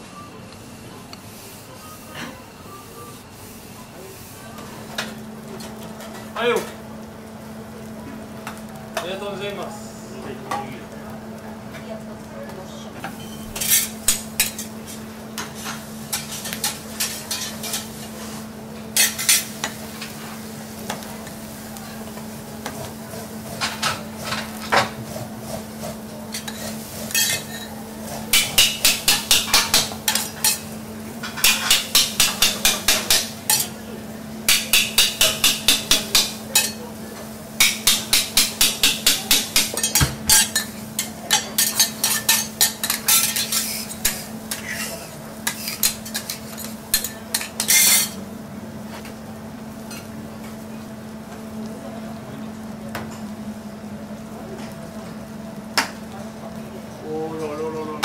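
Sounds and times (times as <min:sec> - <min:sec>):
metal spatulas striking griddle: 0:16.1 - 0:17.9, 0:28.3 - 0:30.7, 0:31.3 - 0:33.8, 0:34.5 - 0:36.8, 0:37.6 - 0:48.2.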